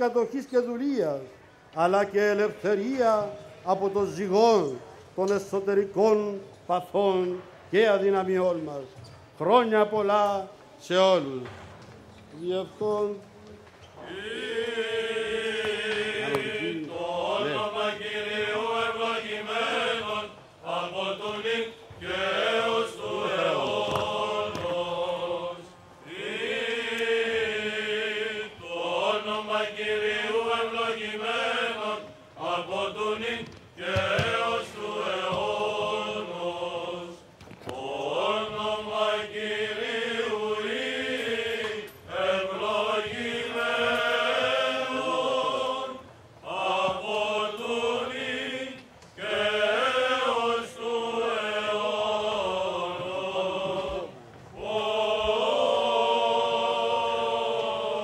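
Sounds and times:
chant sung in slow phrases: 14.0 - 58.0.

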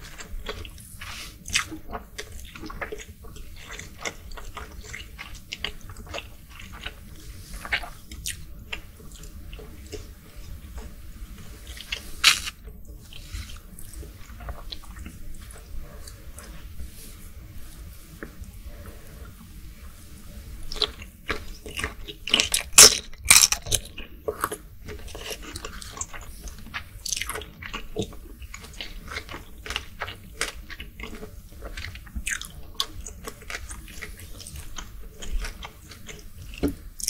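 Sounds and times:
chewing with wet mouth clicks: 0.0 - 16.6, 20.6 - 37.0
biting into shrimp: 11.8 - 12.6.

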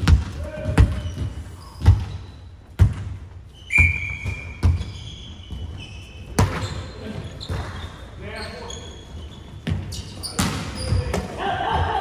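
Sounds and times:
ball bouncing on hard floor: 2.8 - 3.2, 4.2 - 5.6.

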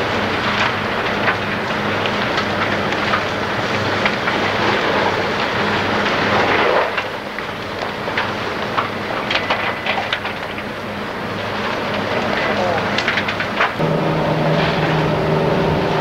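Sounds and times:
fire roaring and crackling: 0.0 - 16.0
low hum: 13.6 - 16.0.

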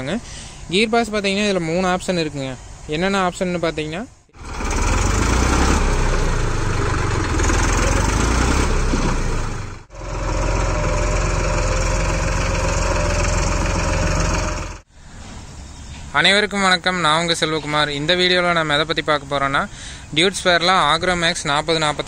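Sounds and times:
tractor diesel engine running: 4.3 - 14.9.

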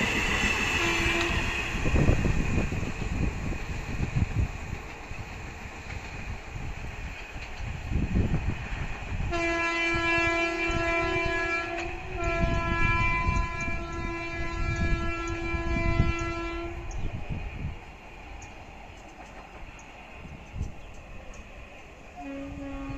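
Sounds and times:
train rumbling on rails: 0.0 - 22.9
train horn blasts: 0.5 - 2.1, 9.2 - 17.0, 22.2 - 22.9.

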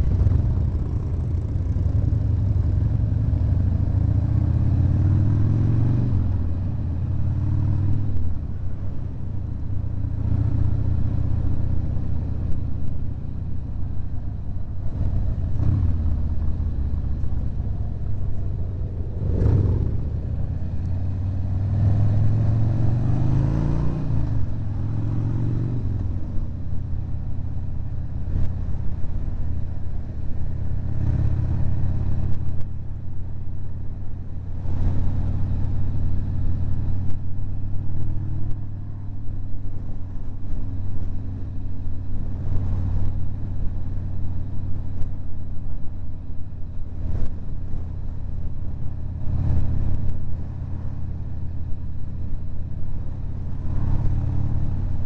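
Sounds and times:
motorcycle engine running: 0.0 - 8.1, 9.4 - 23.0.

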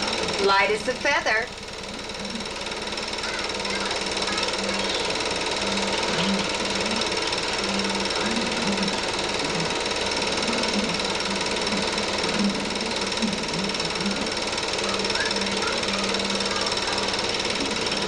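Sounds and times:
film projector whirring: 0.0 - 18.0
low hum: 0.0 - 18.0.

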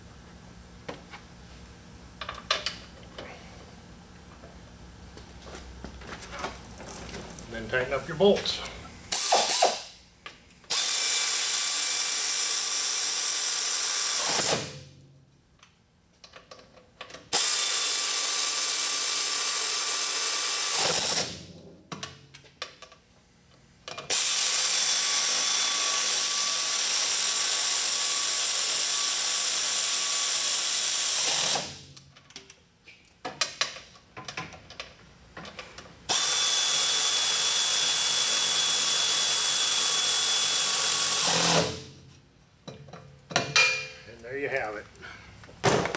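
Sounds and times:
pneumatic air ratchet whirring: 9.1 - 9.9, 10.7 - 14.8, 17.3 - 21.5, 24.1 - 31.8, 36.1 - 41.9.

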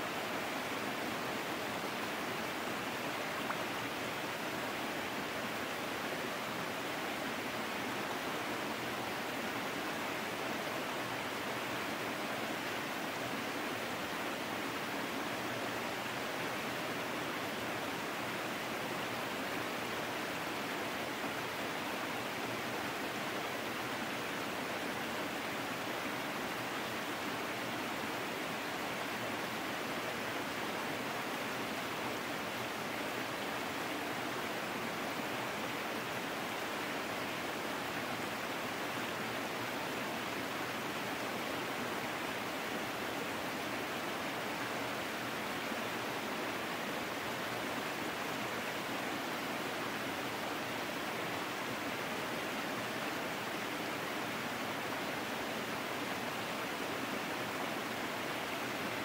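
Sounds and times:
small waterfall splashing: 0.0 - 59.0.

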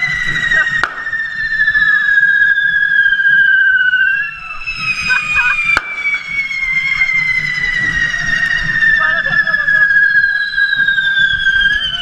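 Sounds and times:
fireworks whistling shrilly: 0.0 - 12.0
crowd hubbub: 4.4 - 12.0.

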